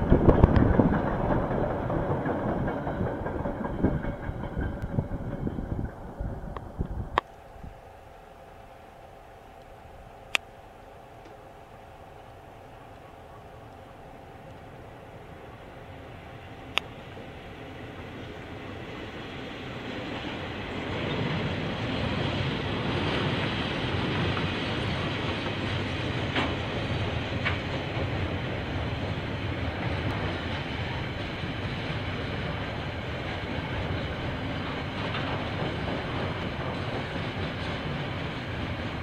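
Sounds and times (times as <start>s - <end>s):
freight train passing: 0.0s - 39.0s.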